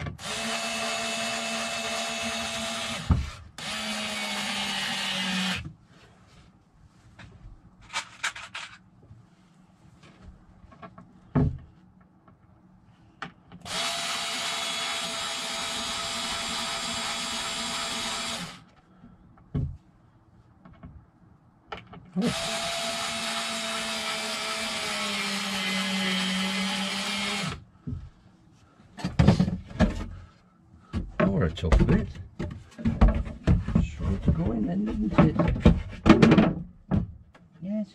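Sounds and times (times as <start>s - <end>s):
cordless drill drilling into wood: 0.0s - 5.6s, 13.6s - 18.6s, 22.2s - 27.6s.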